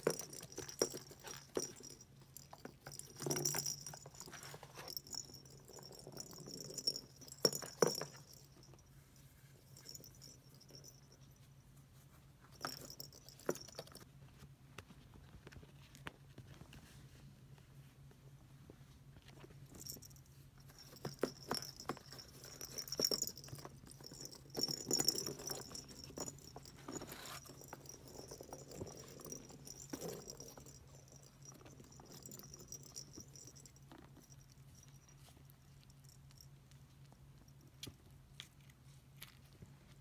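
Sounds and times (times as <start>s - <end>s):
ball rolling and rattling: 0.0s - 8.8s, 9.7s - 11.2s, 12.5s - 14.0s, 19.7s - 34.7s.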